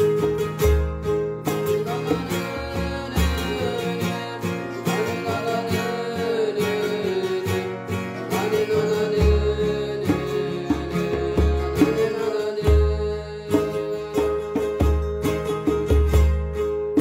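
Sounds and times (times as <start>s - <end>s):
strummed acoustic guitar: 0.0s - 17.0s
person singing a chant: 1.8s - 14.8s.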